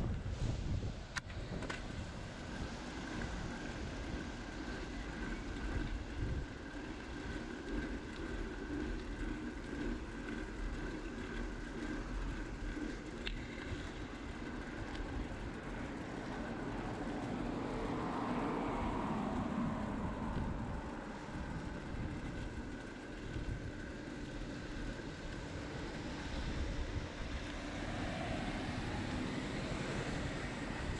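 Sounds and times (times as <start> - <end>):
wind rushing: 0.0 - 4.5
bicycle tyres on asphalt: 0.0 - 30.9
motor traffic: 0.0 - 30.9
vehicle passing: 1.4 - 30.9.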